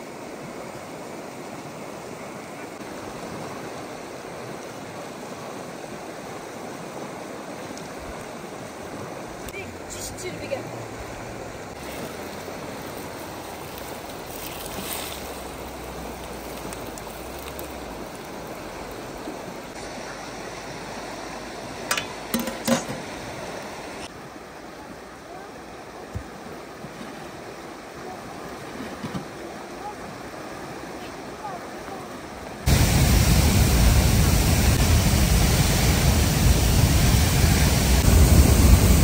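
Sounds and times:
running water rushing: 0:00.0 - 0:39.0
dishes clinking: 0:21.9 - 0:23.0.

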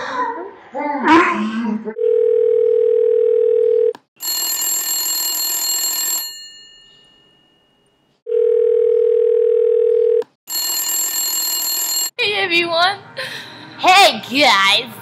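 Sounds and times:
telephone ringback tone: 0:02.0 - 0:07.4, 0:08.3 - 0:12.1
telephone ringing: 0:02.0 - 0:12.2.

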